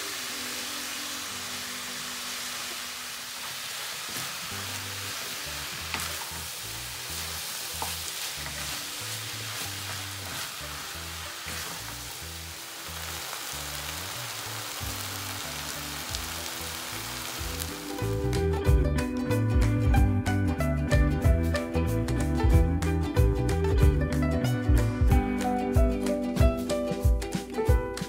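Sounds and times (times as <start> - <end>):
filling sizzling in a frying pan: 0.0 - 18.6
background music with bass line: 14.9 - 28.0.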